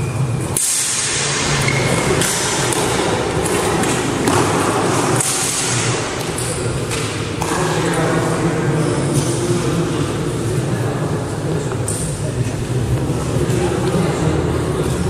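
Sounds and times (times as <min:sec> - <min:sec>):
loud steady rushing noise: 0:00.0 - 0:15.0.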